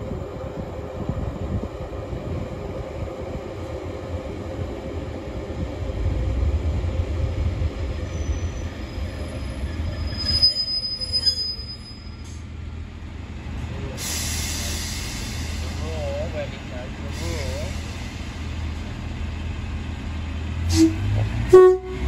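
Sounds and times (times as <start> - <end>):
train engine and wheels rumbling: 0.0 - 22.0
high brake squeal: 8.0 - 12.5, 20.7 - 21.1.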